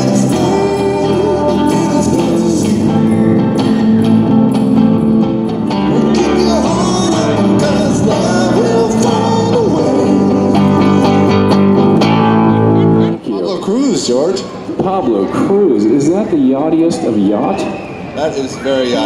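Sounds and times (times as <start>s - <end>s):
person singing: 0.0s - 4.2s, 5.6s - 11.4s
electric bass: 0.0s - 13.2s
guitar: 0.0s - 19.0s.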